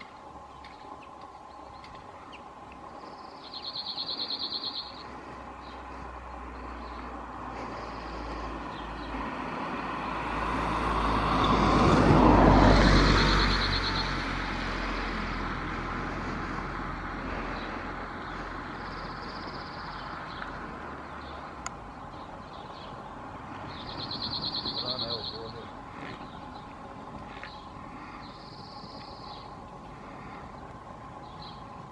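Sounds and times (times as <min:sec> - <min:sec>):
vehicle passing: 0:00.0 - 0:31.9
bird singing rapid trill: 0:03.1 - 0:05.8, 0:12.8 - 0:14.2, 0:17.6 - 0:20.5, 0:21.1 - 0:26.7, 0:27.5 - 0:29.6.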